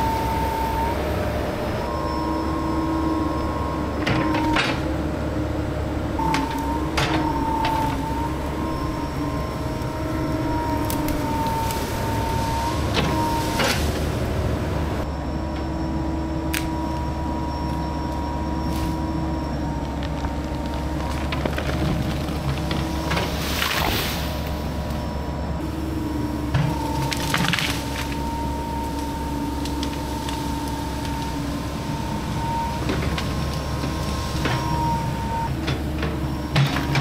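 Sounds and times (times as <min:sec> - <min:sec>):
diesel engine running: 0:00.0 - 0:37.0
hydraulic whine: 0:00.0 - 0:37.0.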